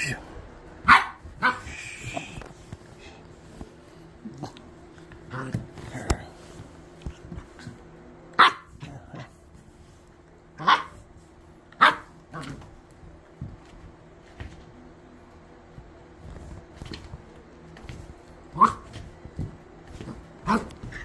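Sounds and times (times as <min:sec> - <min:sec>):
puppy barking: 0:00.8 - 0:01.8, 0:08.4 - 0:08.9, 0:10.6 - 0:11.0, 0:11.8 - 0:12.6, 0:18.5 - 0:19.0.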